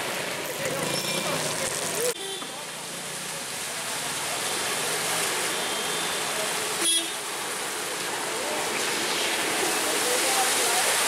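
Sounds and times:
tyres splashing through water: 0.0s - 11.0s
car horn beep: 2.2s - 2.5s, 5.5s - 6.2s, 6.8s - 7.2s.

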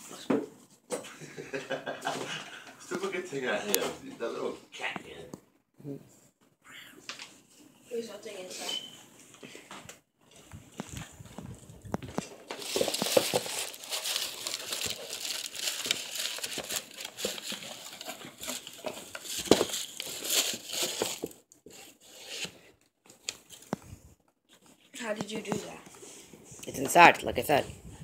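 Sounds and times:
paper packaging crinkling: 10.7s - 21.4s.

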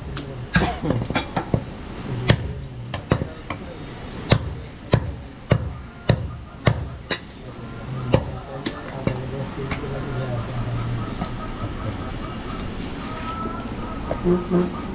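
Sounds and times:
cleaver chopping meat on wood: 1.5s - 3.6s, 4.3s - 7.2s.

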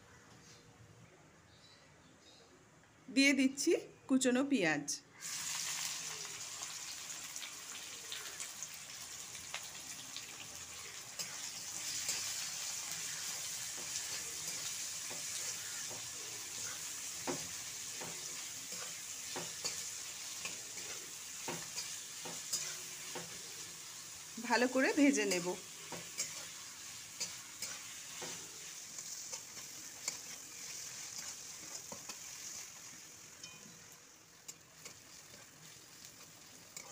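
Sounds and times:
onions sizzling in oil: 5.1s - 36.9s
spatula knocking and scraping pan: 11.2s - 23.5s, 25.3s - 26.6s, 27.2s - 32.3s.

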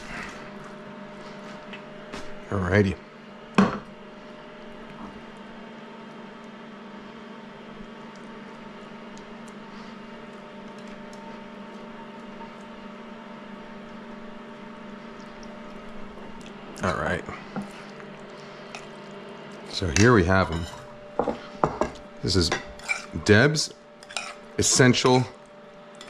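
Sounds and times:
appliance fan noise: 0.0s - 26.0s
electrical hum: 0.0s - 26.0s
spatula scraping metal pan: 22.8s - 23.2s.

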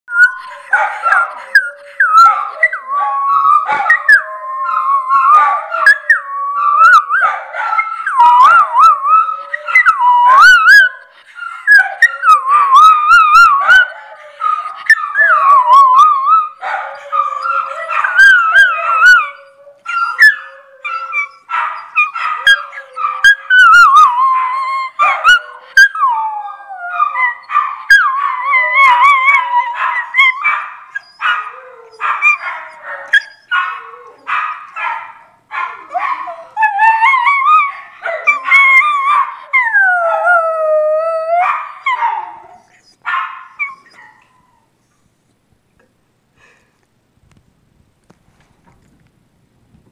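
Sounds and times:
dogs howling: 0.1s - 34.9s, 35.6s - 44.5s.

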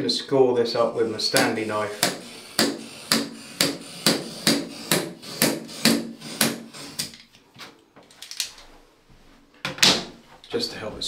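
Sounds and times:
knife scoring wood slats: 1.3s - 7.2s.

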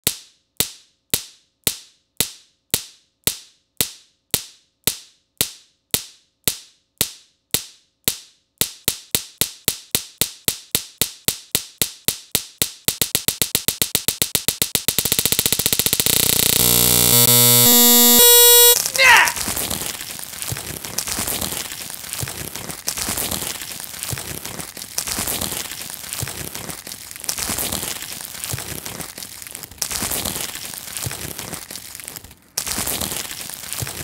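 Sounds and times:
repeated sharp clicks: 4.9s - 18.8s.

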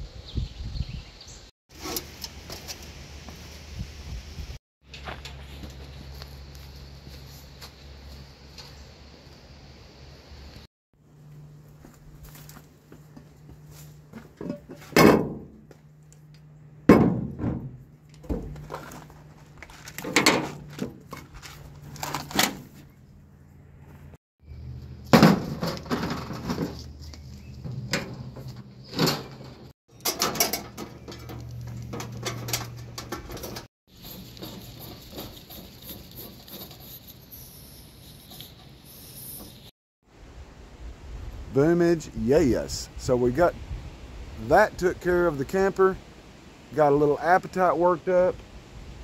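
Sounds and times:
metal stove case set down: 27.7s - 33.6s.

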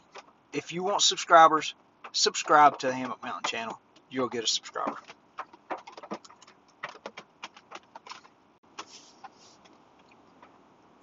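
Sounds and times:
soft pouch rustle: 8.8s - 9.7s.

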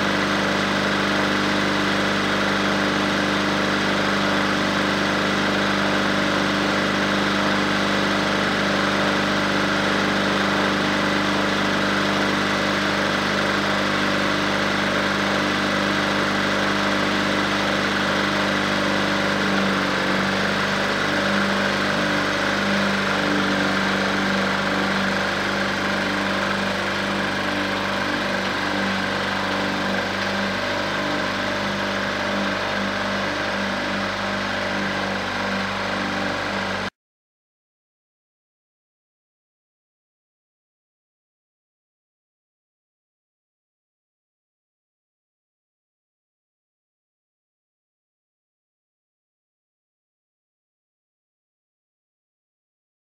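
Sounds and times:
bulldozer diesel engine running: 0.0s - 36.9s.

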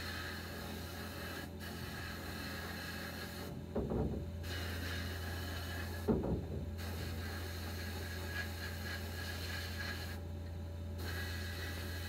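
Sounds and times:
blast cabinet hissing: 0.0s - 10.2s, 11.0s - 12.0s
knock of part handled: 3.7s - 4.3s, 6.1s - 6.7s.

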